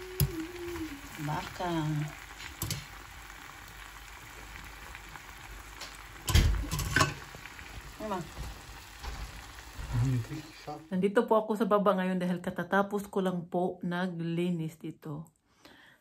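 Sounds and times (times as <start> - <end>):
food sizzling in a pan: 0.0 - 11.1.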